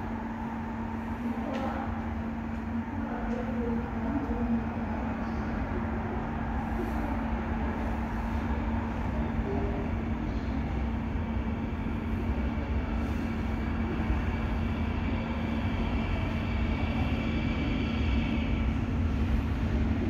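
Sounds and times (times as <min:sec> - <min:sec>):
faint whine: 0:00.0 - 0:20.0
steady hum: 0:00.0 - 0:20.0
subway train rumble: 0:00.0 - 0:20.0.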